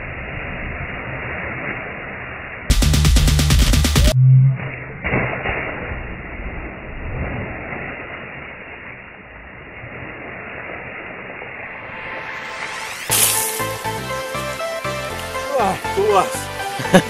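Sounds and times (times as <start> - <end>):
water churning and splashing: 0.0 - 2.7, 4.6 - 17.0
person splashing into water: 4.9 - 9.0, 10.0 - 14.0.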